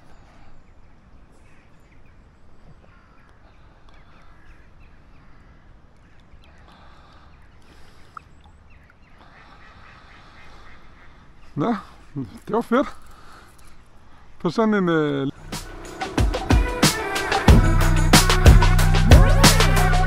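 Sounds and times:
ducks quacking: 9.1s - 13.4s
steady low rumble: 15.4s - 20.0s.

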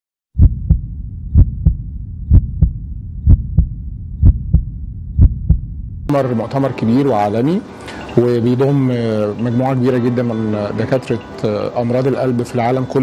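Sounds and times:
heartbeat thumps: 0.4s - 6.1s
low steady rumble: 0.4s - 6.1s.

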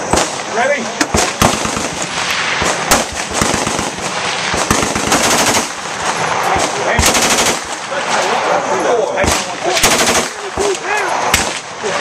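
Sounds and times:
single gunshots: 0.0s - 5.8s, 9.2s - 11.8s
machine gun fire: 1.1s - 8.0s, 9.2s - 11.8s.

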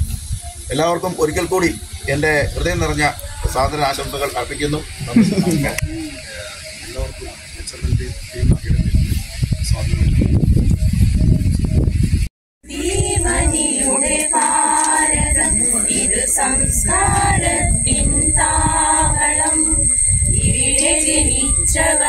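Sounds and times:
low rumbling noise: 0.0s - 22.0s
women singing together: 12.7s - 22.0s.

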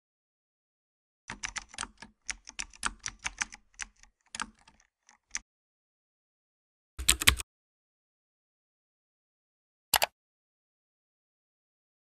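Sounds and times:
computer keyboard typing: 1.3s - 5.4s, 7.0s - 7.4s.

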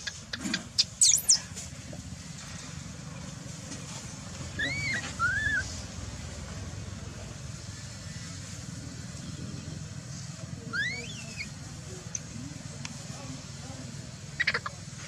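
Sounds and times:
baby monkey crying: 0.8s - 1.4s, 4.6s - 5.6s, 10.7s - 11.4s, 14.4s - 14.8s
sharp high chirps: 0.8s - 1.5s.

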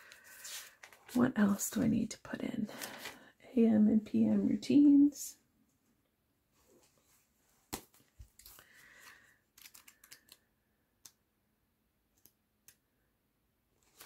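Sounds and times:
paper rustling: 0.0s - 1.2s, 7.7s - 10.4s, 13.8s - 14.0s
small clicks and page flicks: 7.7s - 11.2s, 12.1s - 12.8s.

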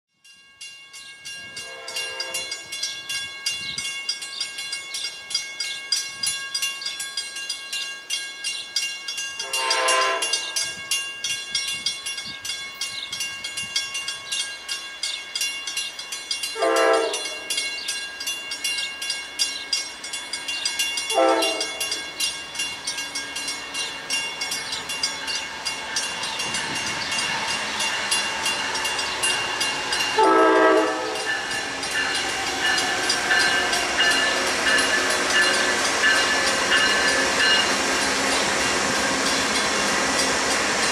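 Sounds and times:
crossing bell ringing: 0.1s - 40.9s
locomotive air horn: 1.6s - 2.5s, 9.4s - 10.5s, 16.6s - 17.4s, 21.1s - 21.9s, 30.2s - 31.4s
train rumble: 9.1s - 40.9s.

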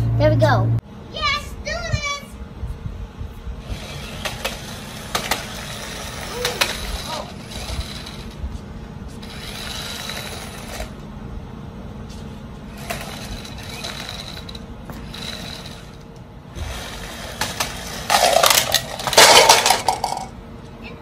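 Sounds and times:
toy car electric motor whirring: 3.6s - 8.4s, 9.2s - 11.0s, 12.7s - 16.0s, 16.6s - 20.2s
plastic toys clattering: 17.4s - 20.3s.

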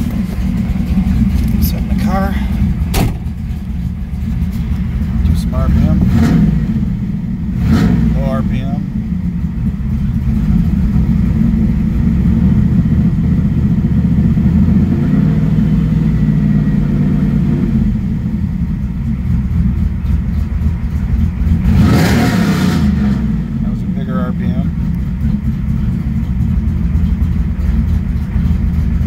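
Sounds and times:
car engine idling: 0.0s - 29.0s.

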